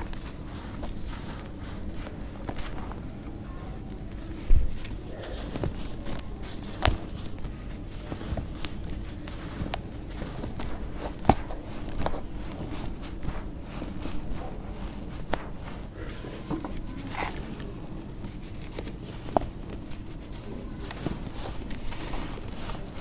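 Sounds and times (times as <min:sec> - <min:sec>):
hands crushing dry sand mix: 0:00.0 - 0:23.0
lumps crackling: 0:00.0 - 0:23.0.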